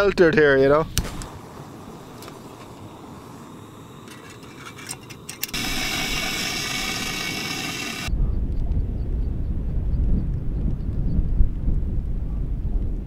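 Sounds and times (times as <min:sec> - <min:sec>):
loud even hiss: 0:00.6 - 0:08.1
wind buffeting microphone: 0:05.6 - 0:13.0.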